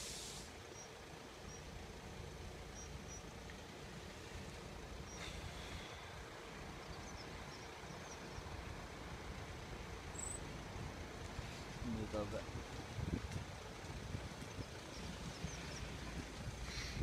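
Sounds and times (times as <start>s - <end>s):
high bird chirps: 10.1s - 10.5s.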